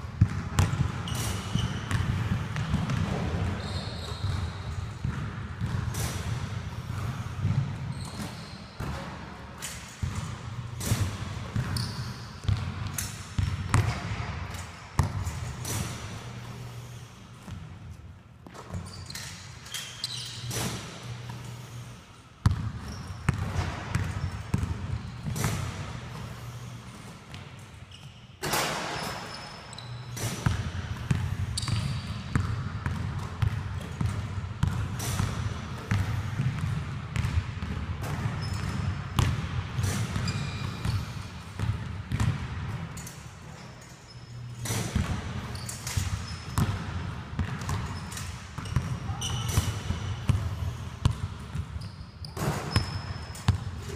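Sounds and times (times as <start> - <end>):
basketballs bouncing on wooden floor: 0.2 - 6.1, 6.9 - 9.1, 10.0 - 14.3, 22.4 - 25.7, 30.4 - 41.0, 41.6 - 42.8, 46.0 - 47.9
short squeaks: 3.6 - 4.7, 7.9 - 8.8, 11.7 - 12.4, 18.7 - 20.7, 27.9 - 30.3, 40.2 - 41.2, 45.5 - 46.6, 47.8 - 49.9, 51.8 - 53.5.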